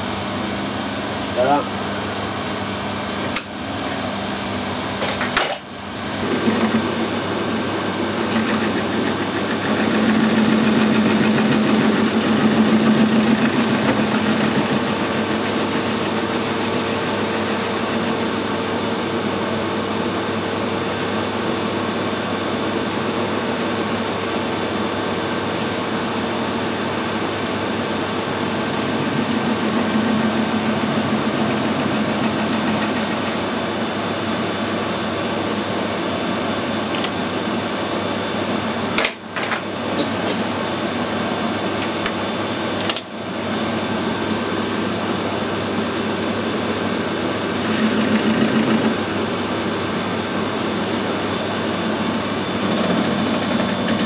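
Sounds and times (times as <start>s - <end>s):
metal lathe running: 0.0s - 54.0s
lathe tool cutting metal: 6.1s - 18.8s, 26.7s - 33.6s.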